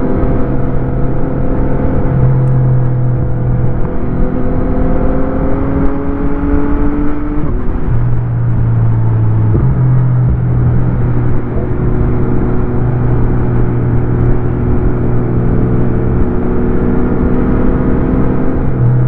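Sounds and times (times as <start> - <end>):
motorcycle engine running: 7.5 - 17.7.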